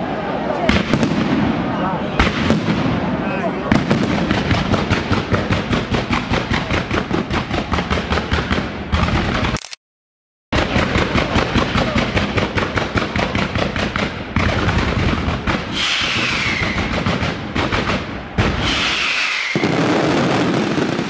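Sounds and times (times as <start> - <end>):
fireworks bangs and crackles: 0.5 - 9.6, 10.6 - 21.0
falling firework whistles: 15.7 - 17.1, 18.4 - 21.0.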